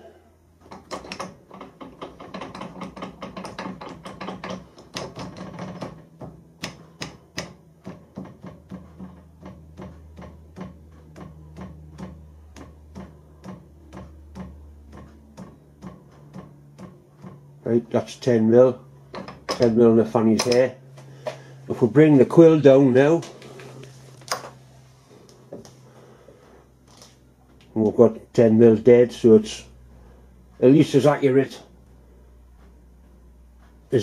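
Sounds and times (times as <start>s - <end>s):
steady low hum: 0.0s - 34.0s
hand crank clicking: 0.7s - 6.0s.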